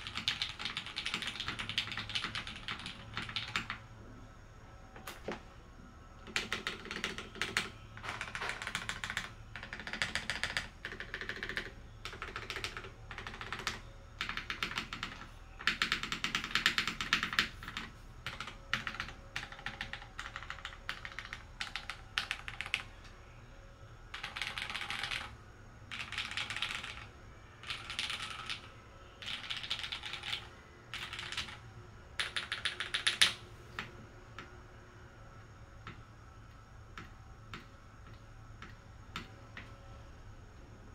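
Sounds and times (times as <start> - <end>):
mechanical keyboard typing: 0.0 - 3.9, 6.2 - 23.0, 24.1 - 34.6.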